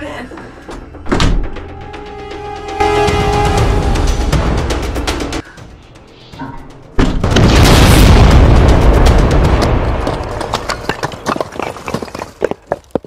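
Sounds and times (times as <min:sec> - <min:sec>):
explosion boom rumbling: 0:07.2 - 0:10.9.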